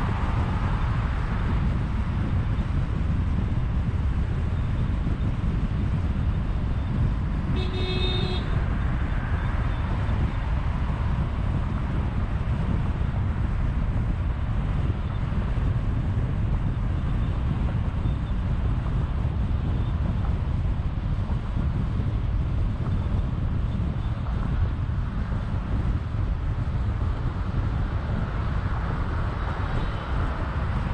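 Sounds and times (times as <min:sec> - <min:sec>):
car road and wind rumble: 0:00.0 - 0:30.9
car horn toot: 0:07.5 - 0:08.6.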